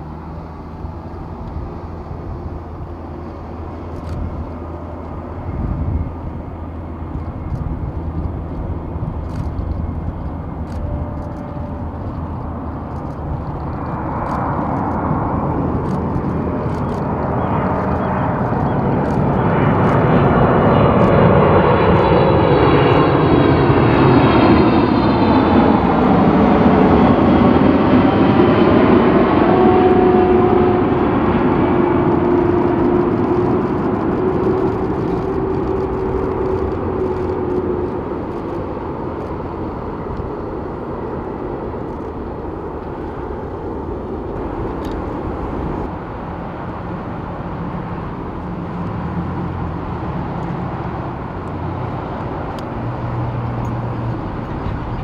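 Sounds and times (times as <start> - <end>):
jet airliner engines rumbling: 0.0 - 55.0.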